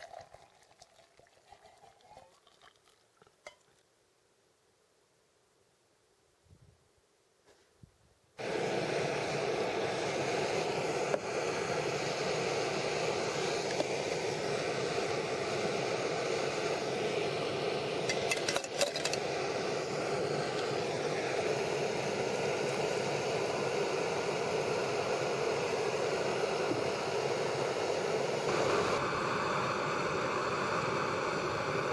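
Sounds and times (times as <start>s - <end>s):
gas stove burner hissing: 8.4s - 31.9s
metal cartridges clinking into mug: 18.1s - 19.2s.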